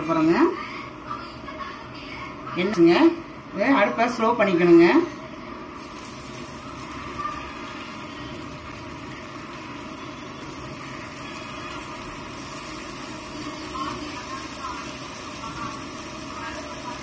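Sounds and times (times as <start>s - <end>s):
cutlets sizzling in hot oil: 5.7s - 17.0s.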